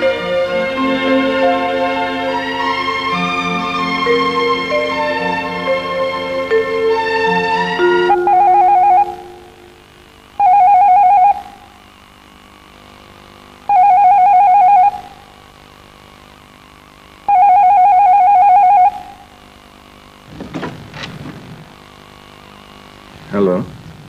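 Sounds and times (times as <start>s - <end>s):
electronic telephone ringing: 7.8s - 9.8s, 10.4s - 11.7s, 13.7s - 15.2s, 17.3s - 19.3s.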